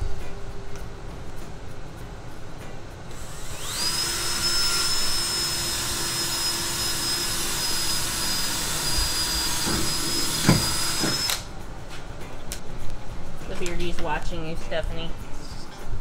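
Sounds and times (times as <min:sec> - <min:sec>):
cordless drill motor whine: 0:03.1 - 0:11.4.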